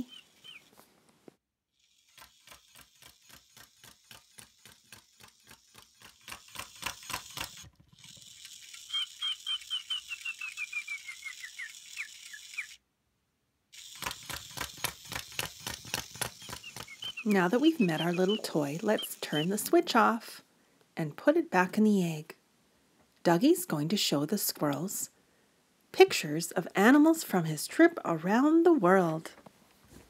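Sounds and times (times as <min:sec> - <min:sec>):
toy motor feet ticking: 0:01.8 - 0:12.8, 0:13.8 - 0:19.8.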